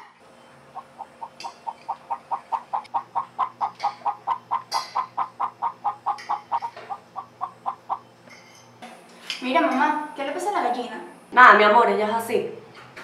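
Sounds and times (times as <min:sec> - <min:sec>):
hen clucking: 0:00.5 - 0:08.3.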